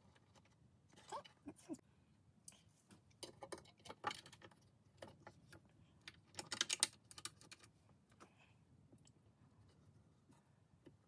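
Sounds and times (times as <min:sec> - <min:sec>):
plastic connectors clicking and rattling: 0:06.0 - 0:07.7.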